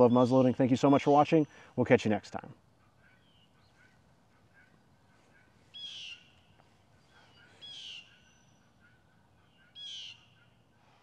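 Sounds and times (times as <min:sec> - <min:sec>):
harsh bird call: 0:02.8 - 0:06.5, 0:07.2 - 0:10.6
soft bird chirps: 0:02.8 - 0:10.9.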